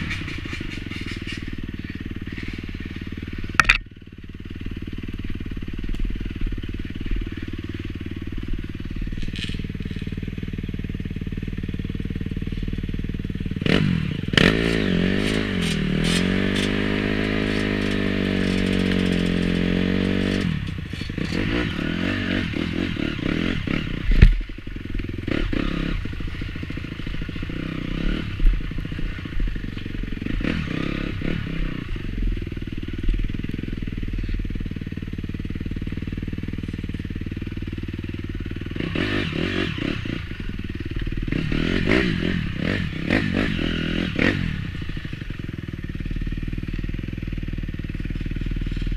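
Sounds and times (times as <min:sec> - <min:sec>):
bike clattering over rough ground: 0:00.0 - 0:04.0, 0:09.0 - 0:10.4, 0:14.4 - 0:22.2
dirt bike engine revving: 0:00.0 - 0:48.9.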